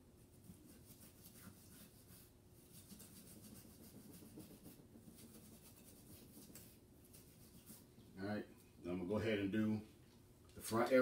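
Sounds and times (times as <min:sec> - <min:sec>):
small brush scratching metal: 0:00.4 - 0:07.9.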